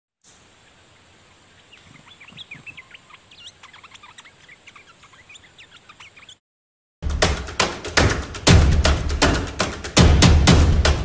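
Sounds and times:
birds chirping and whistling: 0:01.6 - 0:06.4.

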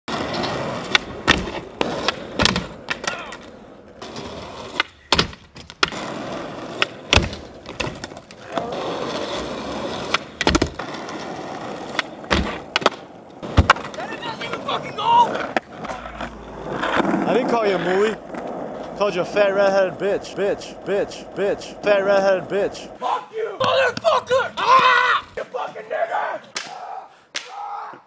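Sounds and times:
skateboard trucks grinding ledge: 0:00.1 - 0:22.4
skateboard wheels rolling on asphalt: 0:00.1 - 0:26.5
skateboard pops and slaps: 0:00.3 - 0:06.1, 0:06.7 - 0:08.7, 0:10.0 - 0:10.9, 0:11.8 - 0:14.2.

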